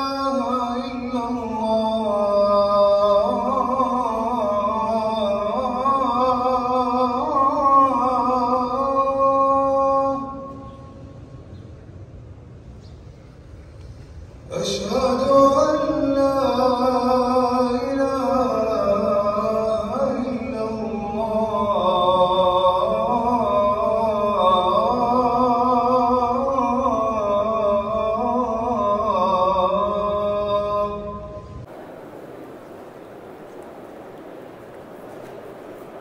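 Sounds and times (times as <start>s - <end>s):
man chanting in long held notes: 0.0s - 11.0s, 14.5s - 31.7s.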